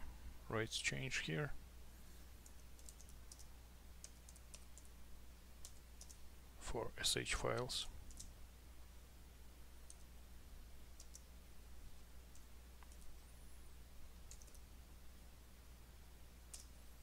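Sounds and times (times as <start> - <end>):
steady low hum: 0.0 - 17.0
computer keyboard keystrokes: 2.4 - 4.9, 5.6 - 6.2, 7.5 - 8.3, 11.0 - 11.3, 14.3 - 14.6, 16.5 - 16.7.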